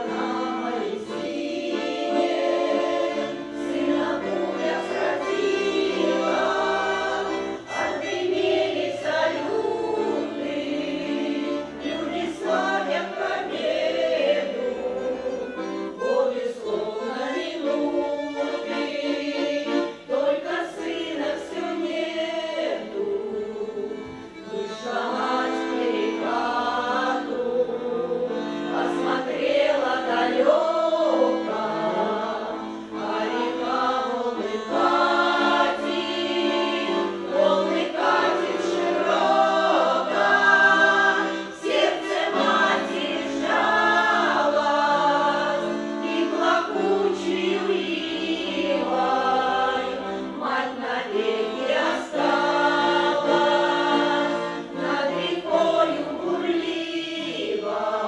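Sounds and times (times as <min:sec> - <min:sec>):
accordion sustained chords: 0:00.0 - 0:58.0
women's choir singing folk song: 0:00.0 - 0:58.0.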